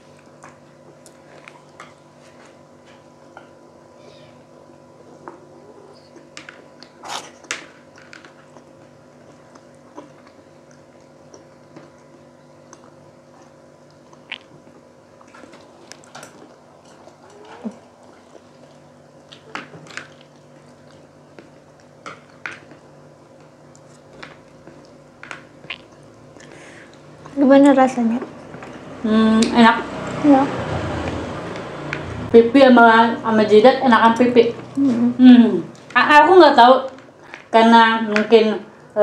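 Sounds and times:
chewing and biting food: 0:00.0 - 0:03.5, 0:05.1 - 0:27.4, 0:28.3 - 0:29.0
faint steady hum: 0:00.0 - 0:39.0.

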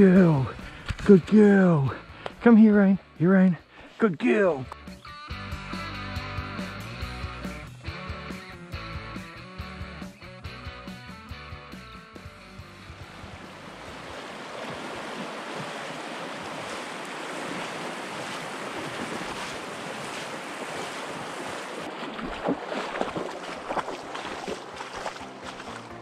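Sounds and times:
river rushing over stones: 0:13.0 - 0:25.8
dog splashing in water: 0:13.2 - 0:26.0.

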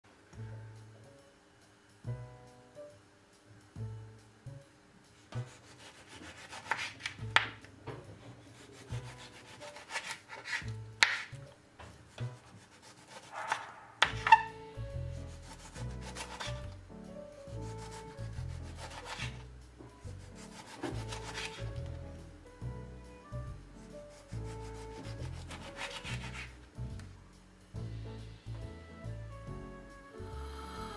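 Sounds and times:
background music with bass: 0:00.4 - 0:04.8, 0:14.0 - 0:30.9
knife slicing on cutting board: 0:05.4 - 0:07.2, 0:08.4 - 0:11.4, 0:12.2 - 0:14.6, 0:15.3 - 0:16.7, 0:17.6 - 0:19.4, 0:20.3 - 0:21.7, 0:24.2 - 0:26.6.

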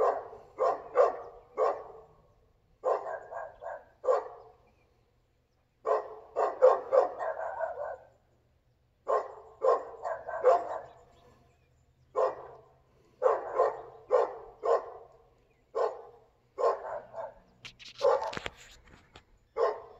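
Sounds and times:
dog barking with echo: 0:00.0 - 0:02.2, 0:02.8 - 0:04.5, 0:05.8 - 0:08.1, 0:09.1 - 0:11.0, 0:12.1 - 0:15.1, 0:15.7 - 0:17.4, 0:19.6 - 0:19.9.

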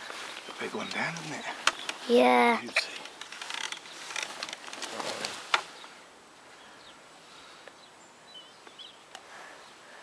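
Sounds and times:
rustling on dry grass: 0:00.0 - 0:07.6.

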